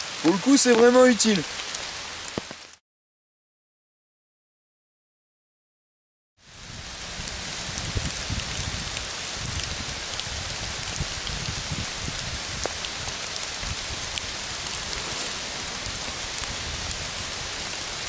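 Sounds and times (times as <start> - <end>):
rain on trees and leaves: 0.0 - 2.8, 6.4 - 18.0.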